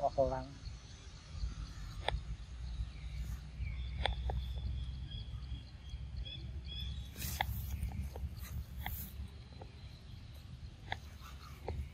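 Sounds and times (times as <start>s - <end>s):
sharp clicks: 1.9s - 2.3s, 3.8s - 4.7s, 10.8s - 11.9s.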